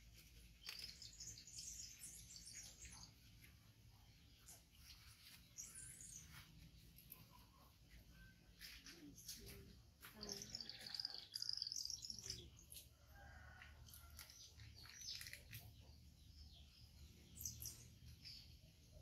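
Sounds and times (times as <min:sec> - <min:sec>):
bird chirping: 0:00.2 - 0:19.0.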